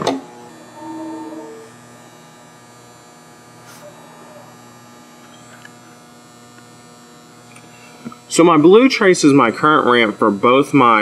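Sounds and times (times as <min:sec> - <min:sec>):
steady hum of constant tones: 0:00.0 - 0:11.0
short tone: 0:00.7 - 0:01.7.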